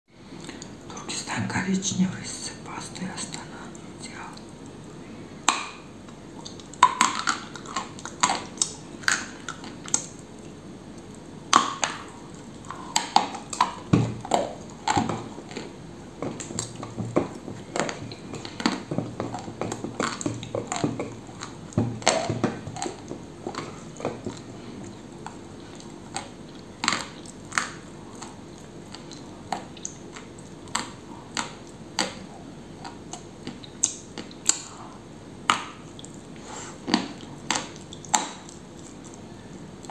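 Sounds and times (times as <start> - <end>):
wet chewing: 3.0 - 39.9.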